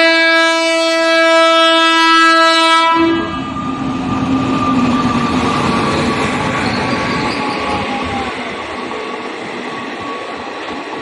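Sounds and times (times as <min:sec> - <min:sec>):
train horn blast: 0:00.0 - 0:04.9.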